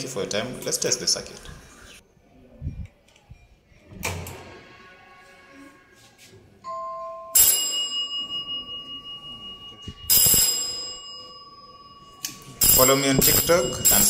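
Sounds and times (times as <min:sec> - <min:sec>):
electric gong bell ringing: 0:06.7 - 0:14.0.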